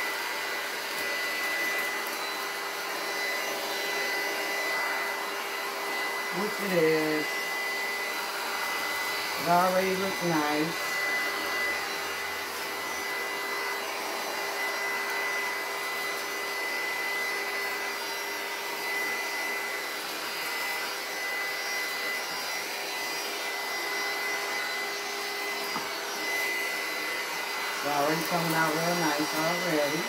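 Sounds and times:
heat gun fan rush and whine: 0.0s - 30.0s.

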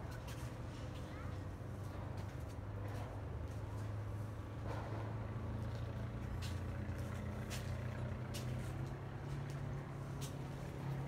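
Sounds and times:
engine humming: 3.9s - 11.0s.

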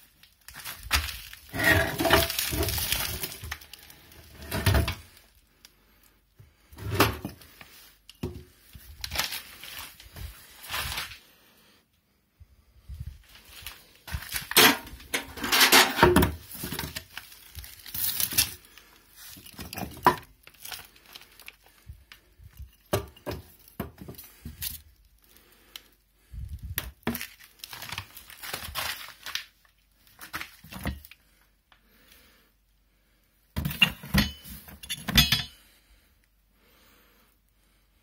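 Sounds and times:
hands handling moped parts: 13.1s - 24.9s.

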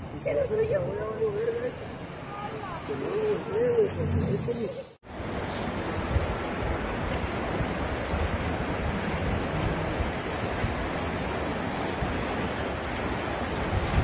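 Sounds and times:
floodwater rushing: 0.0s - 14.0s
wind buffeting microphone: 5.2s - 14.0s.

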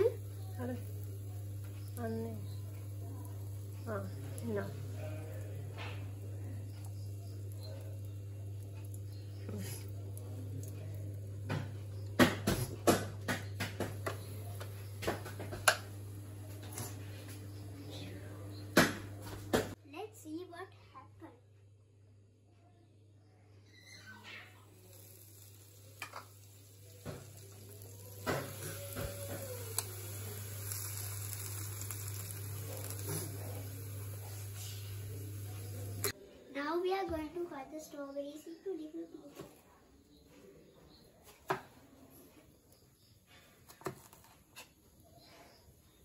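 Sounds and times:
low steady hum: 0.0s - 19.8s, 24.3s - 36.3s
waffles sizzling: 0.0s - 19.8s, 23.9s - 36.2s.

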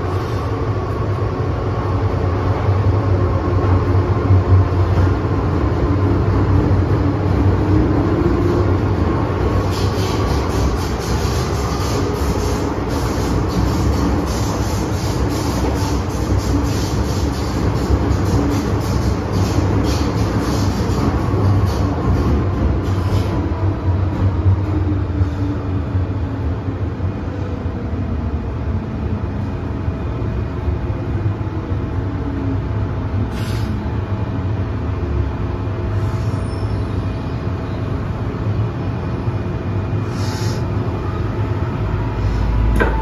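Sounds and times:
train wheels rumbling on track: 0.0s - 43.0s.

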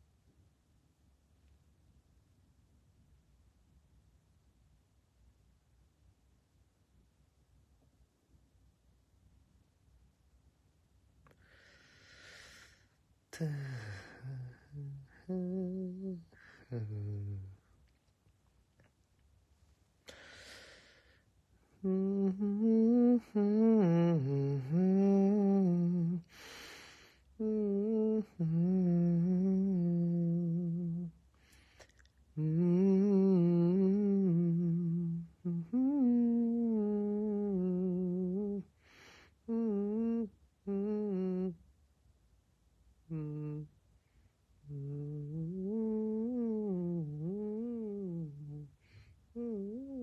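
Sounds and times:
man humming a slow melody: 12.6s - 17.8s, 21.6s - 26.6s, 27.3s - 41.7s, 43.0s - 43.8s, 44.5s - 50.0s
quick breath in: 20.1s - 21.2s.

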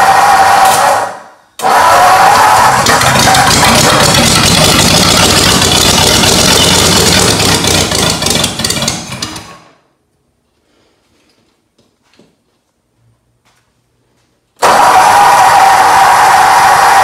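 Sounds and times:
engine running and stalling: 0.0s - 9.7s, 14.6s - 17.0s.

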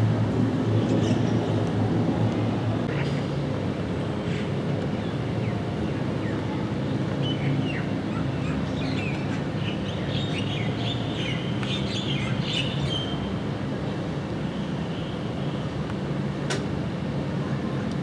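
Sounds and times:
steady low rumble: 0.0s - 6.9s.

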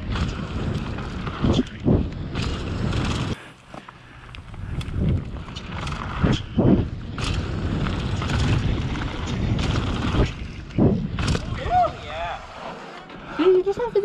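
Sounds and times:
bike clicks and rattles: 0.0s - 12.0s
tyres rolling over dirt: 0.0s - 13.9s
wind on microphone: 4.4s - 12.0s.

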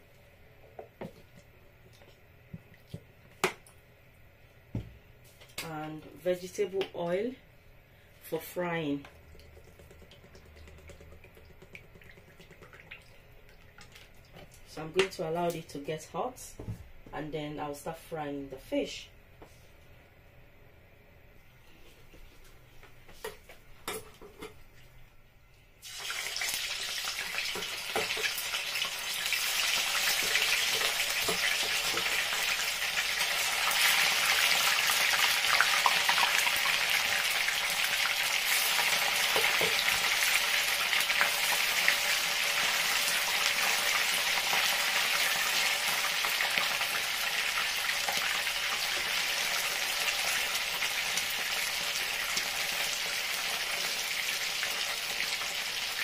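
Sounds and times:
fish sizzling in hot oil: 25.8s - 56.0s.

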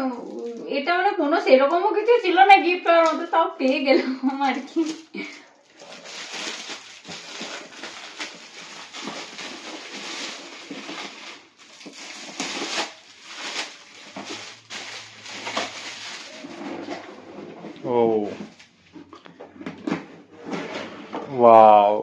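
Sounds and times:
foil wrapping paper tearing: 4.6s - 17.0s.

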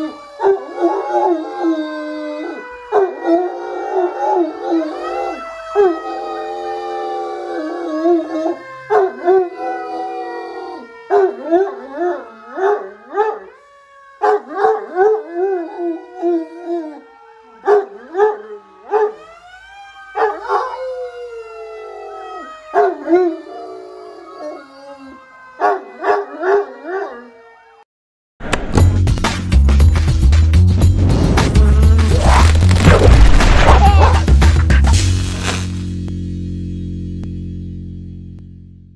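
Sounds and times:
dog howling: 0.0s - 13.6s, 14.2s - 19.4s, 20.1s - 27.8s
fire engine siren wailing: 0.0s - 27.9s, 32.1s - 34.2s.

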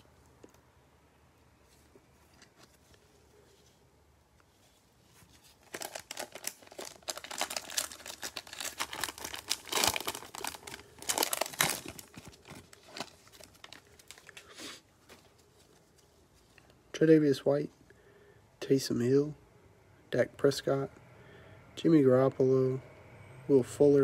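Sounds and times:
plastic wrapper tearing and crinkling: 5.4s - 14.5s.

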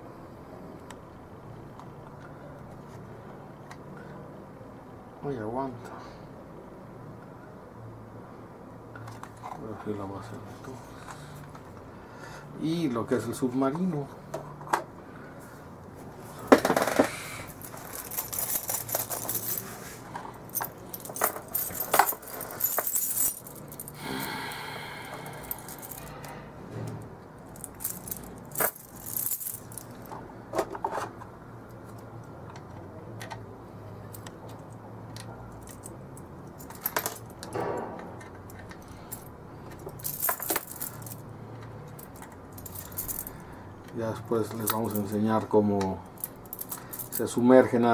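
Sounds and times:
plastic parts knocking together: 16.5s - 17.2s.

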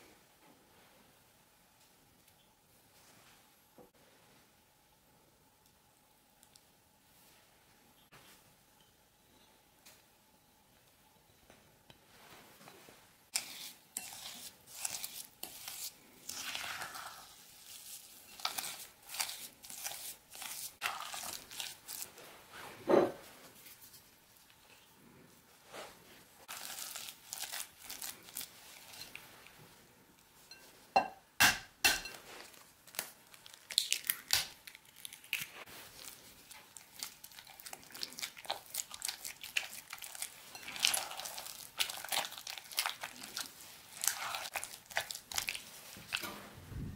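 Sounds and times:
stirring butter and sugar in bowl: 13.3s - 22.4s, 26.4s - 29.4s, 35.6s - 46.3s.

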